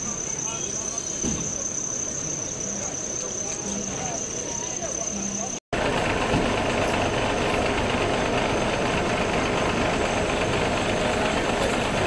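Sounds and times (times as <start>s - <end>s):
vehicle engines idling: 0.0s - 12.0s.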